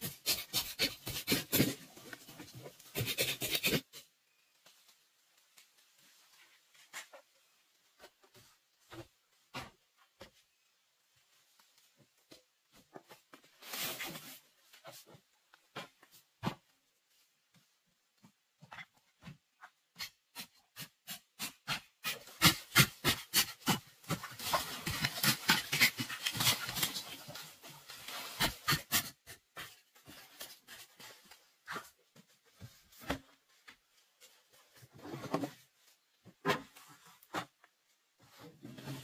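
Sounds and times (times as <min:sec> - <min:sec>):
scraping strokes digging soil: 0:20.0 - 0:31.9.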